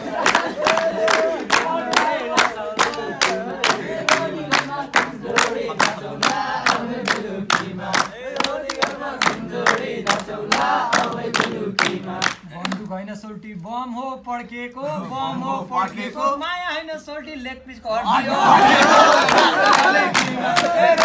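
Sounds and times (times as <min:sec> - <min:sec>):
people singing folk song: 0:00.0 - 0:12.4, 0:18.4 - 0:21.0
hand-clapping: 0:00.0 - 0:13.0, 0:18.8 - 0:21.0.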